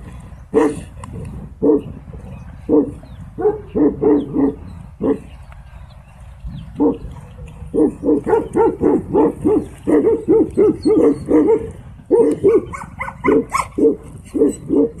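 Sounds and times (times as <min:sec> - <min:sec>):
dog barking rapidly: 0:02.7 - 0:05.2, 0:07.7 - 0:15.0.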